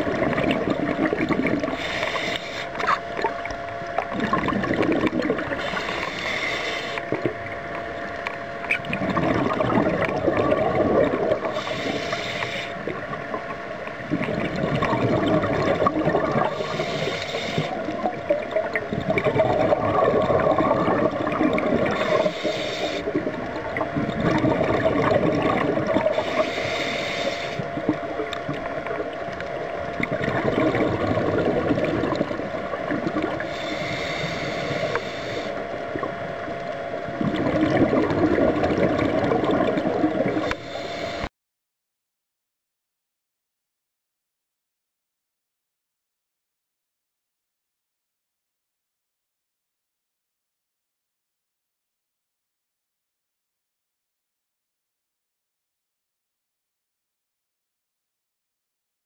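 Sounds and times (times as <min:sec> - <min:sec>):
exhaled bubbles burbling: 0:00.0 - 0:02.0, 0:02.6 - 0:06.2, 0:07.0 - 0:11.8, 0:12.7 - 0:26.4, 0:27.6 - 0:33.6, 0:35.6 - 0:40.6
regulator air hiss: 0:01.6 - 0:02.9, 0:05.5 - 0:07.2, 0:11.4 - 0:13.0, 0:16.5 - 0:17.9, 0:21.9 - 0:23.2, 0:26.1 - 0:27.8, 0:33.3 - 0:36.0, 0:40.3 - 0:41.3.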